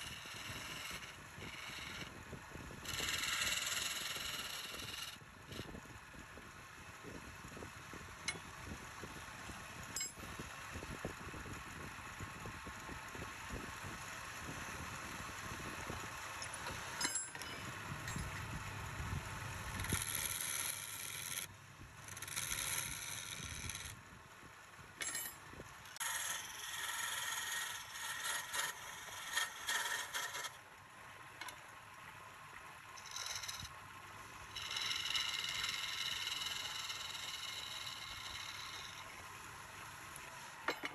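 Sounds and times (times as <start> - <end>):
turning tool scraping wood: 0.0 - 2.2, 2.8 - 5.7, 19.7 - 24.0, 26.0 - 30.6, 34.5 - 39.2
wood lathe spinning: 0.0 - 6.1, 11.5 - 24.0, 25.8 - 30.6, 33.0 - 40.9.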